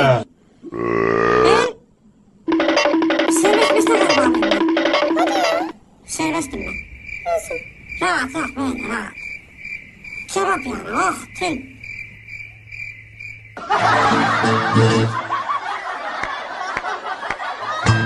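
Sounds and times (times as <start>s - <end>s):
music: 2.5s - 5.7s, 14.0s - 15.3s, 17.8s - 18.0s
high-pitched trill: 2.5s - 5.8s.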